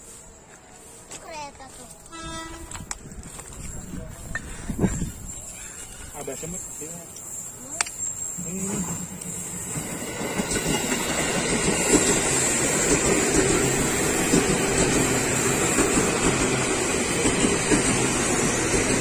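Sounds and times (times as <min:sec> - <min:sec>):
electric train rolling past: 0:01.6 - 0:19.0
wheels knocking on rails: 0:09.8 - 0:19.0.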